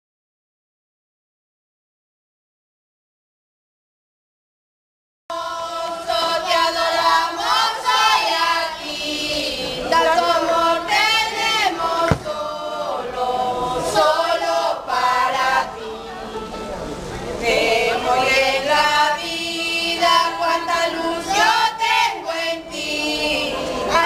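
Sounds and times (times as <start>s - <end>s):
women singing together: 5.3s - 24.0s.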